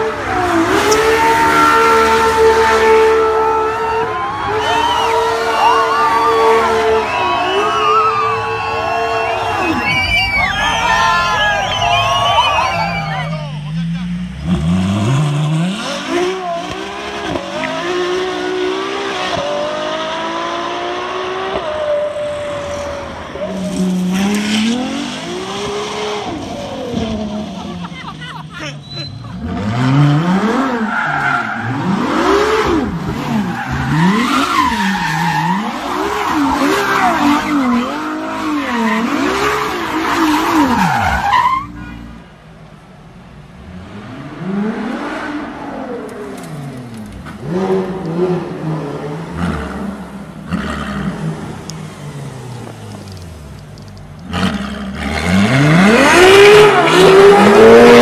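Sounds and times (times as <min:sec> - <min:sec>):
car accelerating hard: 0:00.0 - 0:13.2, 0:13.8 - 0:27.9, 0:29.2 - 0:41.8, 0:43.6 - 0:53.6, 0:54.2 - 0:58.0
car engine revving: 0:00.0 - 0:27.8, 0:29.2 - 0:42.4, 0:43.0 - 0:58.0
tyres squealing: 0:27.9 - 0:29.6.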